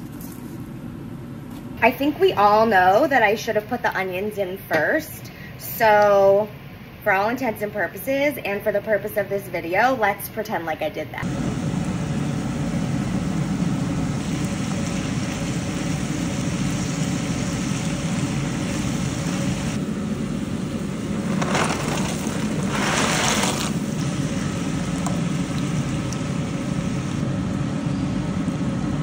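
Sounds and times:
steady low rumble: 11.2 - 29.0
dry pasta pouring into pot: 21.3 - 23.9.

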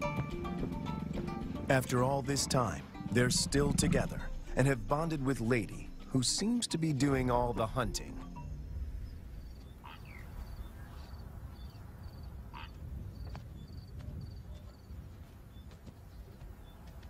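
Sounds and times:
low rumble: 2.4 - 6.5.

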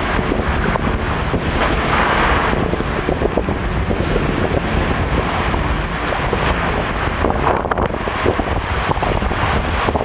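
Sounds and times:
sea surf breaking: 0.0 - 10.0
wind buffeting microphone: 0.0 - 10.0.

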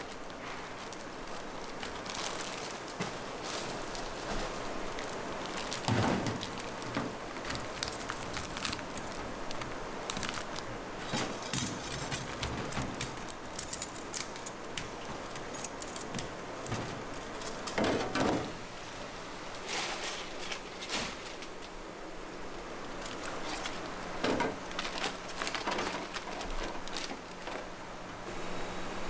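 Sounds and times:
steady sizzle: 0.0 - 11.5.

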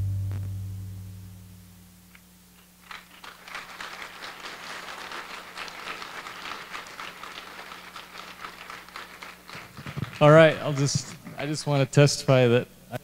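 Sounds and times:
audience applauding: 2.8 - 11.1.

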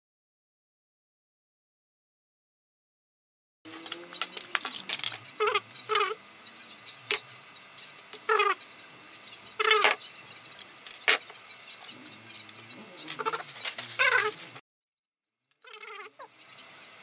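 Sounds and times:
short animal-like calls: 11.9 - 14.5.

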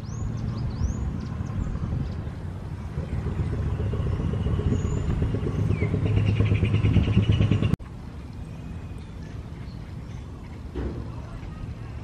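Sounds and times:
vehicle engine running: 2.5 - 7.8.

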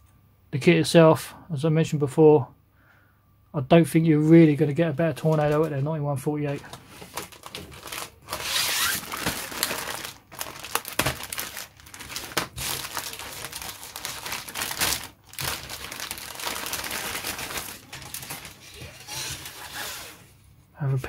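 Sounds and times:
plastic bag crinkling: 4.6 - 20.2.

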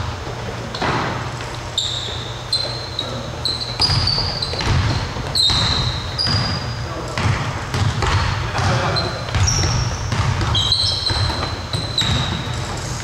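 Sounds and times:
sneaker squeaks: 0.0 - 13.0
basketball dribbling on hardwood: 3.8 - 6.6, 7.2 - 13.0.

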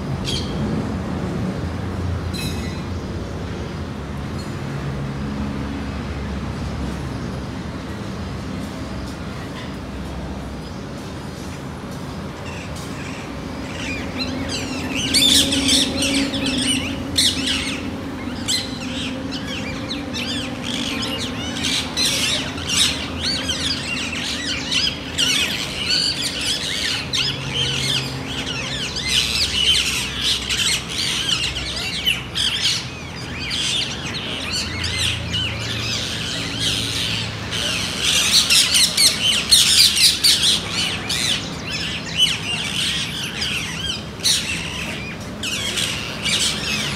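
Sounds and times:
parakeets squawking: 12.4 - 46.9.

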